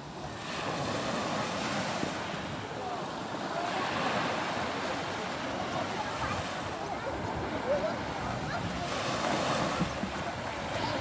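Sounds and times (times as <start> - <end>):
surf washing on shore: 0.0 - 11.0
wind on microphone: 5.7 - 11.0.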